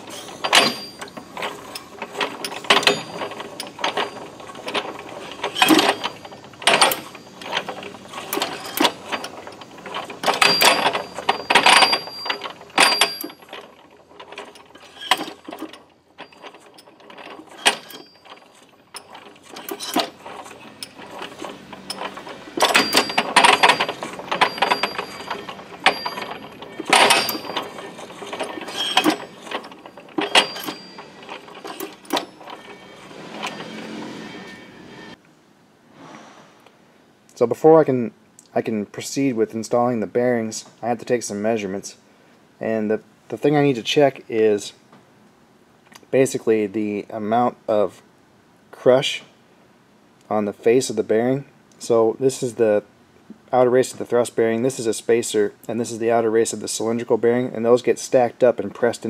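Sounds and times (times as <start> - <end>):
steel gears clanking: 0.0 - 35.2.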